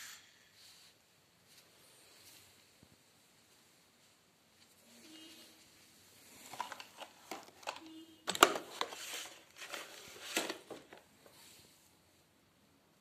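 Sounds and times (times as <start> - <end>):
rustling: 0.1 - 11.9
plastic toys knocking together: 6.5 - 9.0.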